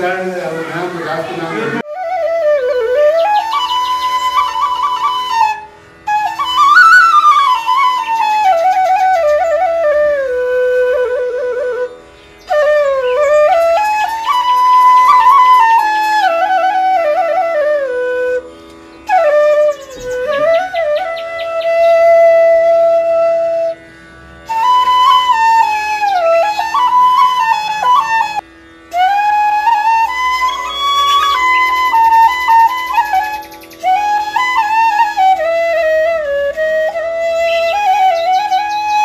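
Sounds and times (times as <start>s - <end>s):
solo flute melody: 1.5s - 39.0s
steady drone: 30.0s - 34.1s.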